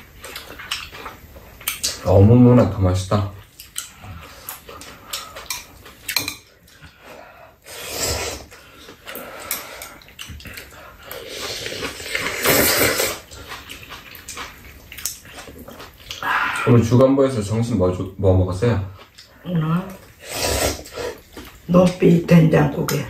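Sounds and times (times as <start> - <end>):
chopsticks clicking against bowls: 3.6 - 3.9, 4.5 - 6.9
noodles slurped: 7.6 - 14.6, 20.2 - 21.5.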